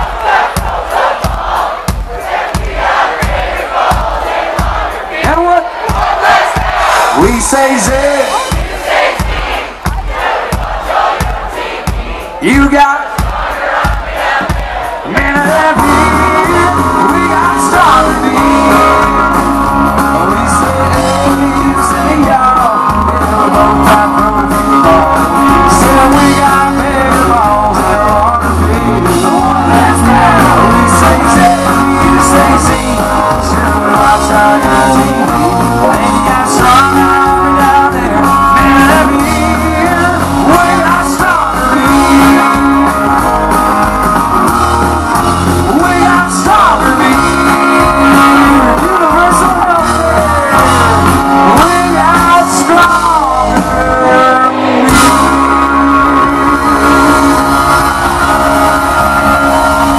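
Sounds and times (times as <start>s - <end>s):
drums: 0.0s - 59.9s
electric and acoustic guitars: 3.2s - 8.6s, 14.4s - 59.9s
person singing: 15.0s - 59.9s.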